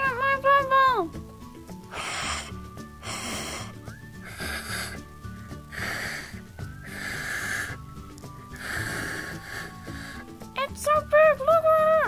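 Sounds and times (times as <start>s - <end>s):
light background music: 0.0s - 12.0s
breathy puffs of air: 1.7s - 10.6s.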